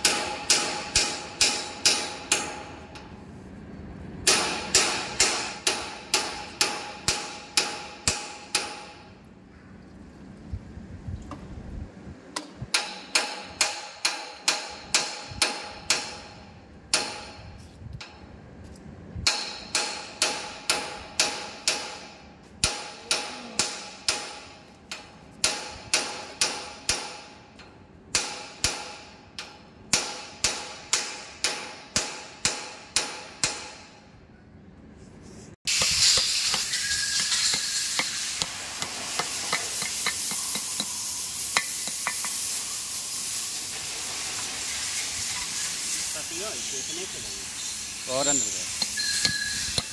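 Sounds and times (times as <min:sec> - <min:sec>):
steady hiss: 0:35.7 - 0:49.9.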